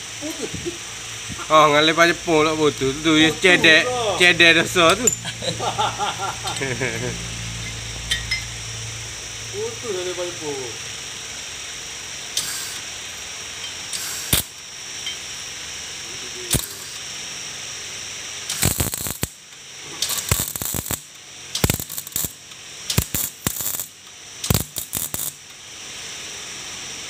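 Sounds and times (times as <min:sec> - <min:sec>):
welding arc crackling: 0:00.0 - 0:25.8
sharp clicks: 0:21.6 - 0:22.3.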